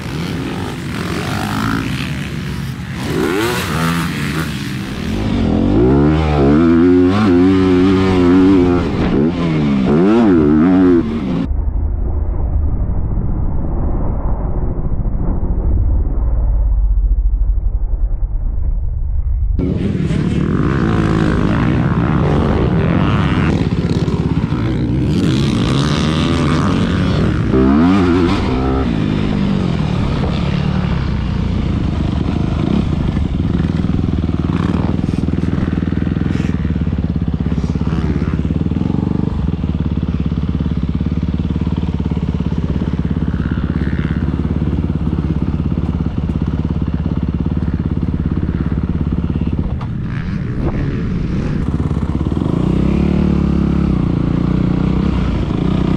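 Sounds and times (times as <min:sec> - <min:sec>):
dirt bike engine running: 0:00.0 - 0:11.5, 0:19.6 - 0:55.9.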